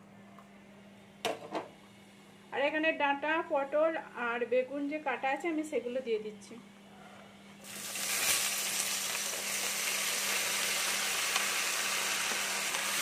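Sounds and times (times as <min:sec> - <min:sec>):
vegetables sizzling in hot oil: 0:07.6 - 0:13.0.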